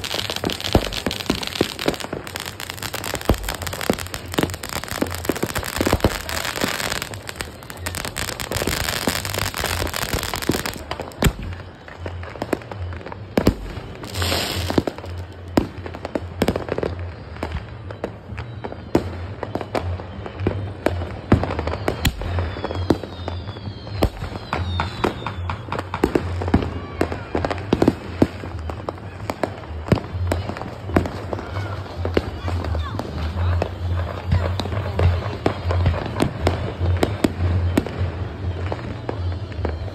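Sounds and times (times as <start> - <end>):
firework shells bursting: 0.0 - 11.5
falling whistling fireworks: 0.0 - 39.9
firecrackers crackling: 0.0 - 39.9.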